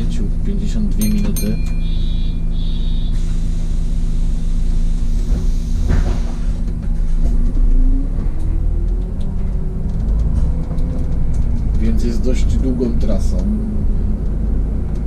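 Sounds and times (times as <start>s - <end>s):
bus engine running: 0.0s - 15.0s
short high beeping: 1.0s - 3.3s
air hissing: 2.6s - 6.7s.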